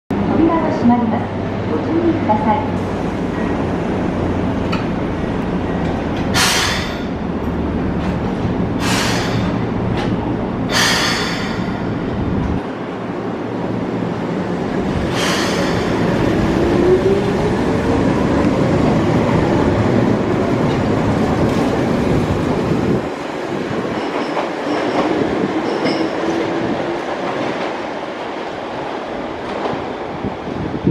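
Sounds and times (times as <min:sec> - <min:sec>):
rising train whine: 0:00.1 - 0:30.9
train wheels on rails: 0:02.6 - 0:30.9
air hisses: 0:06.4 - 0:07.2, 0:08.8 - 0:09.6, 0:10.7 - 0:11.8, 0:15.1 - 0:16.1.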